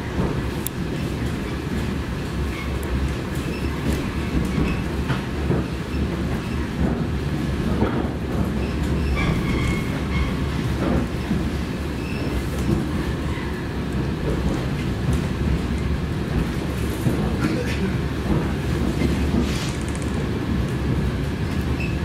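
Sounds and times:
train rumbling along track: 0.0 - 22.0
train wheel squeal: 8.6 - 10.6, 12.0 - 12.4, 21.8 - 22.0.

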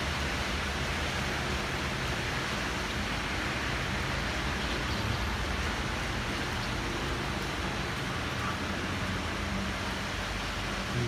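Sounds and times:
rain hissing: 0.0 - 11.0
street traffic rumble: 0.0 - 11.0.

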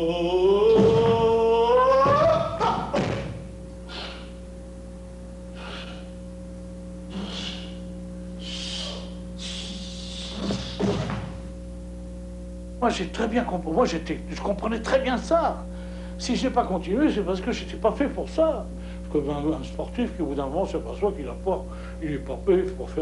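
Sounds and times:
man chanting: 0.0 - 2.9
old film sound hum: 0.0 - 23.0
thuds: 2.0 - 3.5, 10.4 - 11.4
short hisses: 8.4 - 11.2.

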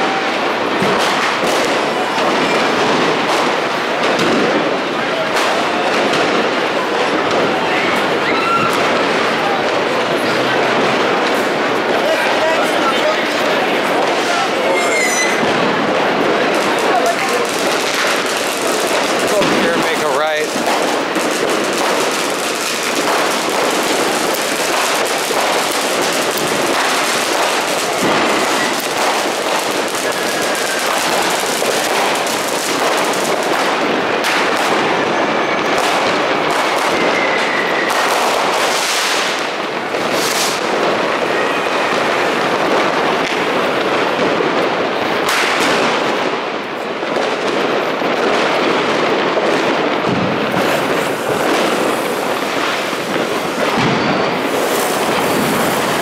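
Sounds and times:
fireworks and firecrackers banging: 0.0 - 56.0
faint firework whistles: 14.2 - 15.6, 34.9 - 39.5, 50.5 - 56.0.

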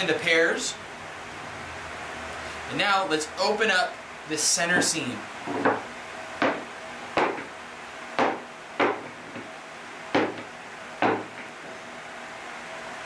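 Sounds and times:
low background hum: 0.0 - 13.0
wooden knocks on workbench: 4.8 - 5.8, 6.4 - 7.5, 8.2 - 9.5, 10.1 - 11.5.

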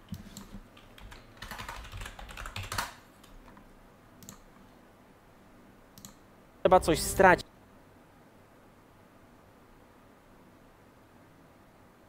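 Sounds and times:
typing on computer keyboard: 0.0 - 3.6.

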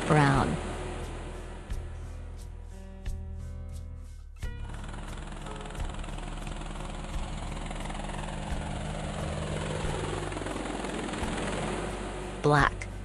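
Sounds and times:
helicopter rotor chopping: 0.0 - 2.0, 4.4 - 13.0.

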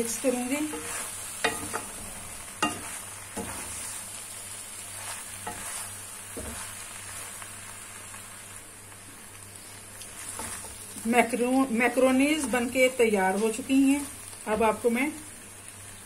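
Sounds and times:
food sizzling in a pan: 0.0 - 16.0
spatula scraping a pan: 0.4 - 4.2, 4.8 - 7.3, 10.1 - 10.8.

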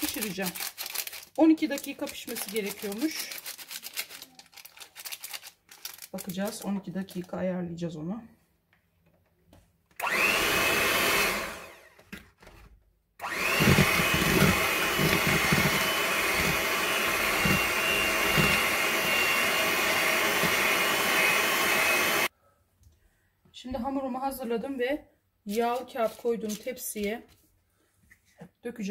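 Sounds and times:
electric hand mixer whining: 10.0 - 12.0, 13.2 - 22.3.

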